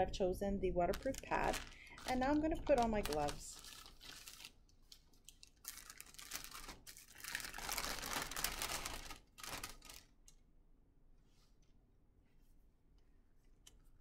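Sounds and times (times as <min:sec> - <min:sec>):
paper wrapper crackling and rustling: 0:00.9 - 0:10.4.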